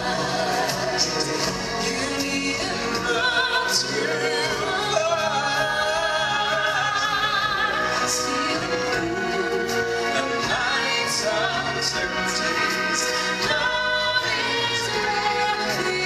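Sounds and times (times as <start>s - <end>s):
instrumental backing music: 0.0s - 16.0s
woman singing into a microphone: 10.3s - 16.0s.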